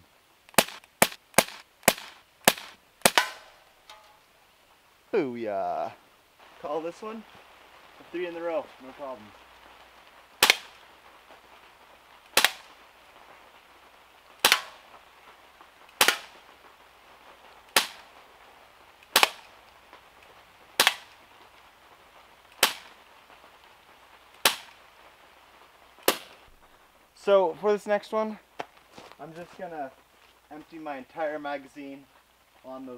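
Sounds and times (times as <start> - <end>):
bb pistol shots: 0.5 - 3.6, 10.4 - 10.8, 12.4 - 12.7, 14.4 - 14.8, 16.0 - 16.4, 17.8 - 18.1, 19.1 - 19.5, 20.8 - 21.1, 22.6 - 22.9, 24.4 - 24.7, 26.0 - 26.4.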